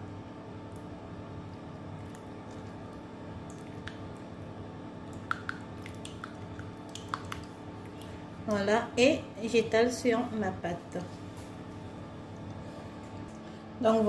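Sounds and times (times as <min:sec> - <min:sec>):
low steady hum: 0:00.0 - 0:14.0
soft wet squishing: 0:00.6 - 0:08.3.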